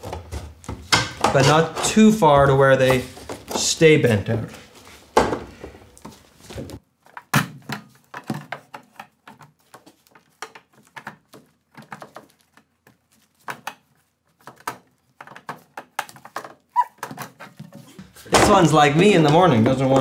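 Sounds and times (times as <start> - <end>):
sheet metal covers clanking: 0.0 - 6.8.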